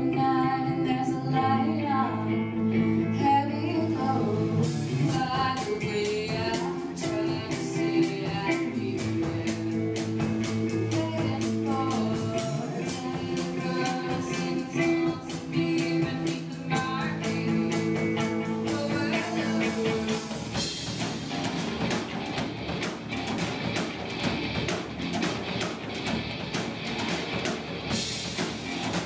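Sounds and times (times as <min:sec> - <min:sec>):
woman singing: 0:00.0 - 0:20.6
electric guitars: 0:00.0 - 0:29.0
rock band playing live: 0:00.0 - 0:29.0
drum kit steady beat: 0:04.6 - 0:29.0.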